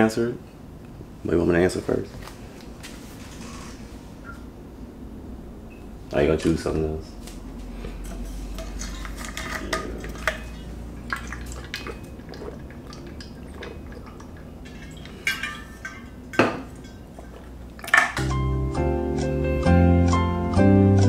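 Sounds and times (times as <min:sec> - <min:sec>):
person drinking: 0:07.8 - 0:16.0.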